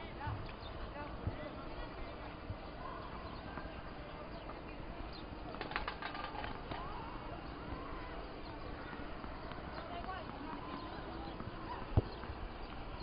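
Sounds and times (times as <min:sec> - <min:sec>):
outdoor background noise: 0:00.0 - 0:13.0
quick run of sharp clicks: 0:05.5 - 0:06.9.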